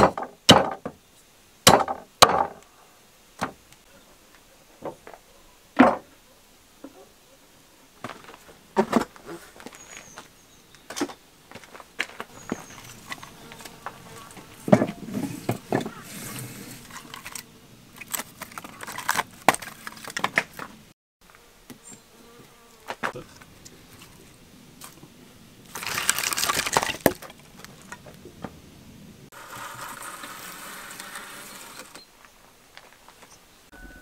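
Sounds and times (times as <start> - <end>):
firewood knocking and clattering: 0.0 - 1.0, 1.7 - 2.6, 5.8 - 6.1.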